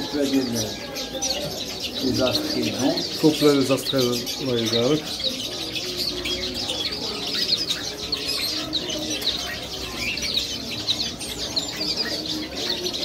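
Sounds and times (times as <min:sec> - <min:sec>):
finches chirping: 0:00.0 - 0:13.0.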